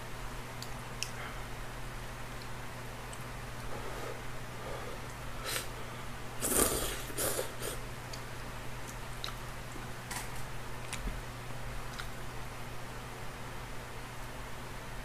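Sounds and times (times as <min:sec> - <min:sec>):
man slurping noodles: 0:06.4 - 0:07.8.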